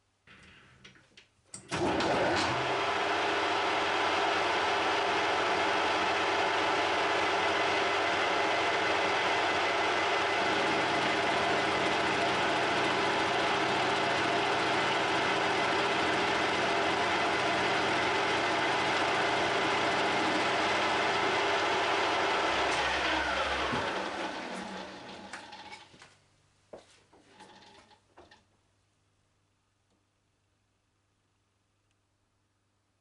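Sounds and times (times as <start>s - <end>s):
metal lathe running: 2.5s - 25.8s
motor whine spinning down: 22.5s - 25.3s.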